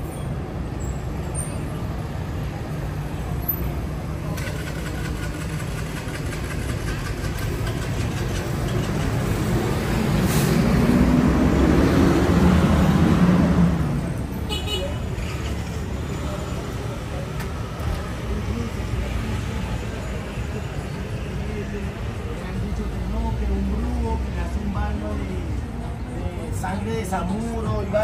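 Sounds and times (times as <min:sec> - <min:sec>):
street traffic: 0:00.0 - 0:28.0
vehicle passing close by: 0:09.1 - 0:14.2.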